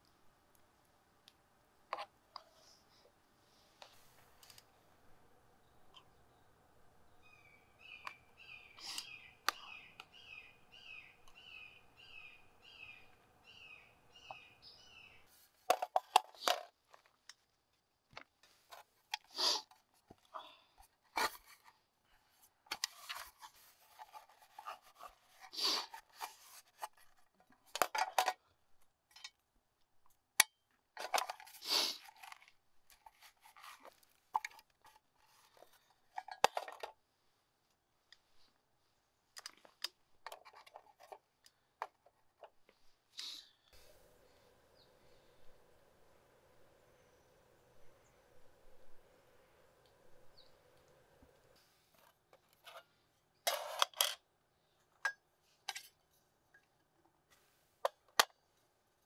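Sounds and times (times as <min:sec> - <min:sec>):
bird calling: 0:05.6 - 0:15.4, 0:46.4 - 0:50.9.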